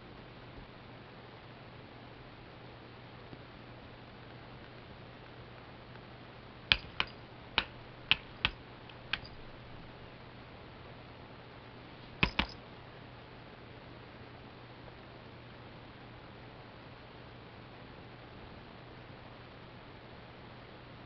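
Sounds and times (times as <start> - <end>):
cat claws tapping on laptop: 6.7 - 9.4, 12.2 - 12.6.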